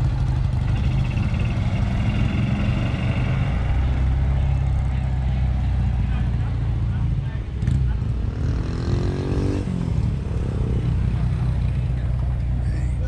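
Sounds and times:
vehicle engine rumbling: 0.0 - 13.0.

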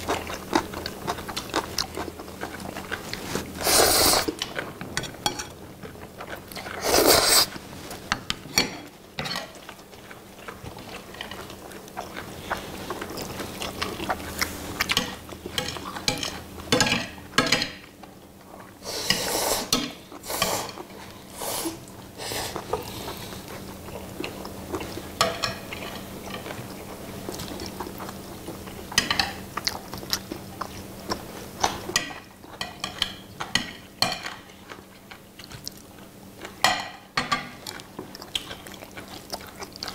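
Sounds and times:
noodles being slurped: 0.0 - 4.6, 6.3 - 7.7.

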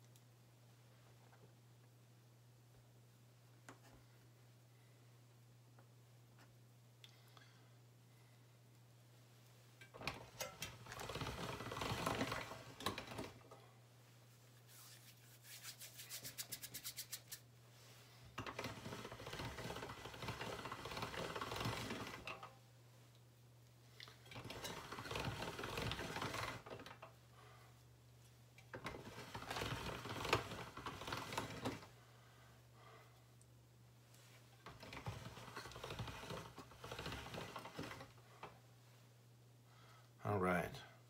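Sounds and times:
soft rubbing and scraping of clay: 14.2 - 20.4.

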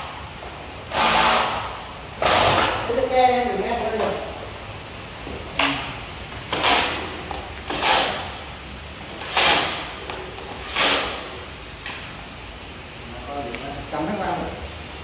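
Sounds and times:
cordless drill driving screws: 0.9 - 2.8, 6.5 - 7.0, 7.7 - 8.3, 9.2 - 9.9, 10.6 - 11.2.

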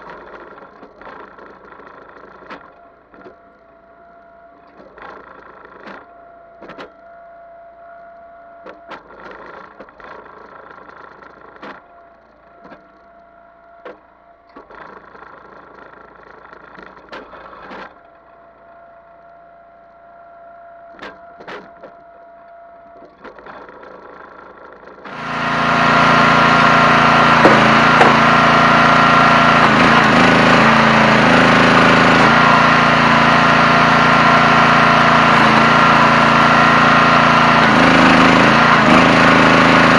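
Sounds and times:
log splitter engine running: 0.0 - 7.0, 23.2 - 39.9
whine: 0.0 - 39.9.

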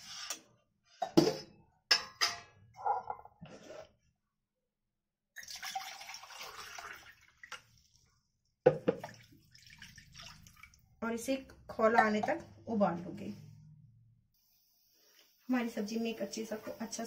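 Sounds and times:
water pouring into a pan: 5.4 - 8.2, 8.9 - 10.8.

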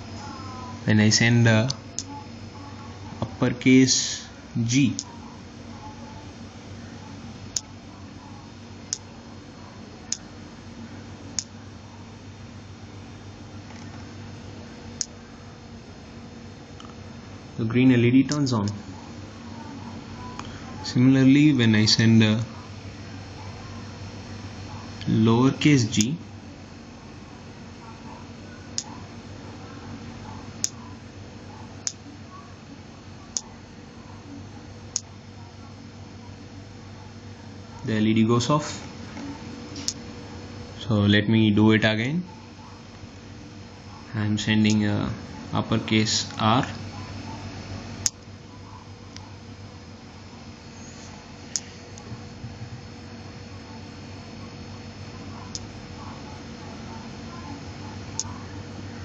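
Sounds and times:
steady low hum: 0.0 - 59.0
sharp high clicks: 30.6 - 30.8.

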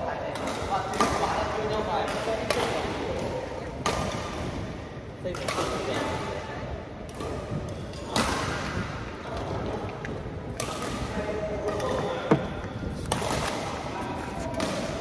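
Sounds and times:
racket hitting shuttlecock: 2.0 - 4.5, 10.6 - 15.0.

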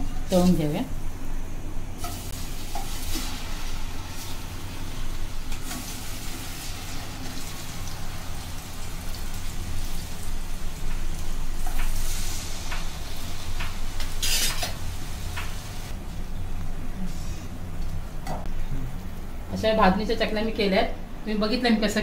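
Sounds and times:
food sizzling in hot oil: 2.0 - 15.9.

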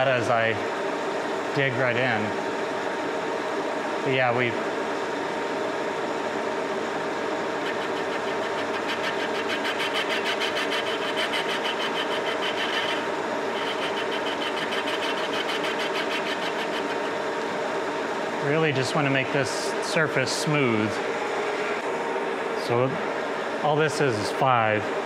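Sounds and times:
metal lathe running: 6.6 - 18.4
fast even pulsing of cutting tool: 7.6 - 17.2.

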